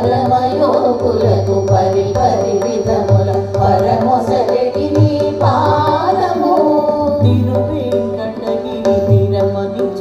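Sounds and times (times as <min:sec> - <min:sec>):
indian classical melody: 0:00.0 - 0:10.0.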